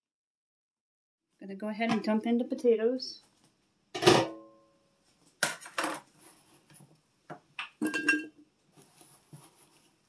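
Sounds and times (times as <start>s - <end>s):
glass lid clanking down: 7.8s - 8.3s.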